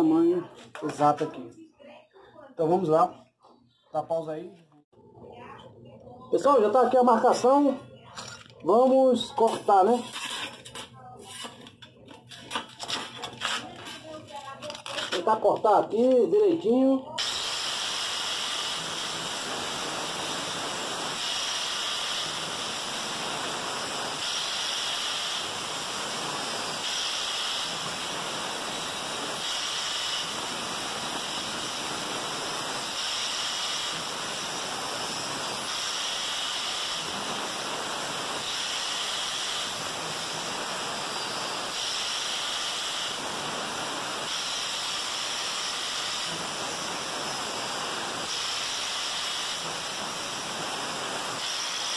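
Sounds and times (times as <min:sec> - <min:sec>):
angle grinder cutting sheet metal: 0:17.2 - 0:51.9.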